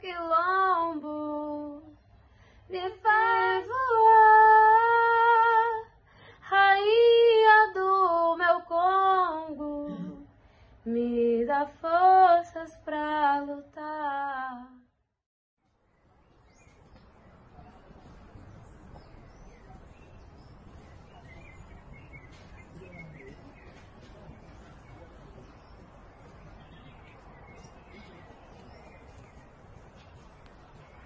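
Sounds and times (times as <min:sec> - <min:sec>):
woman singing unaccompanied: 0:00.0 - 0:02.0, 0:02.7 - 0:14.9.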